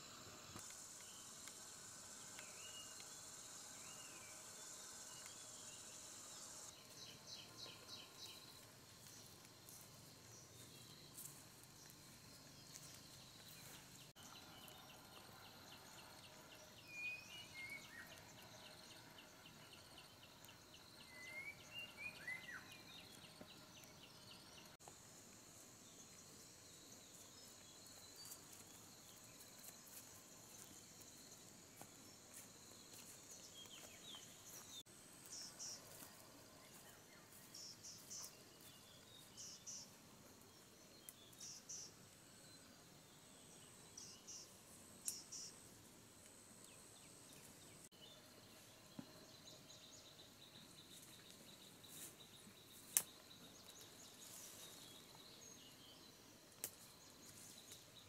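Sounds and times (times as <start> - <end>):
rapid ticking insect call: 0.0 - 48.2
insects trilling: 0.0 - 58.0.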